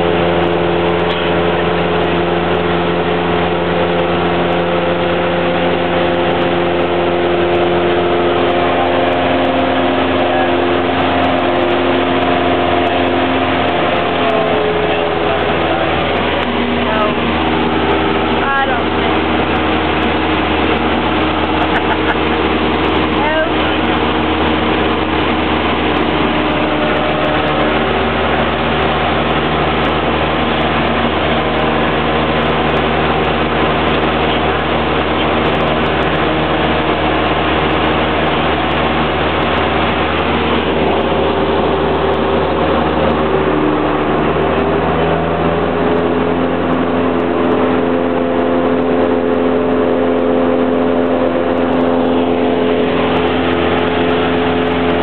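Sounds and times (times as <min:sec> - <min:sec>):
airplane engine and propeller: 0:00.0 - 0:55.0.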